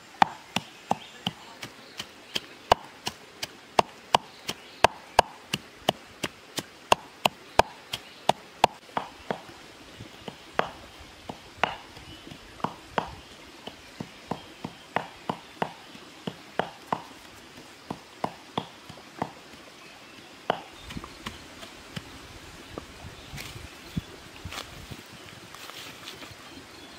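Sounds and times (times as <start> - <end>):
pestle pounding in clay mortar: 0.2 - 9.5, 10.6 - 19.4, 20.1 - 22.1.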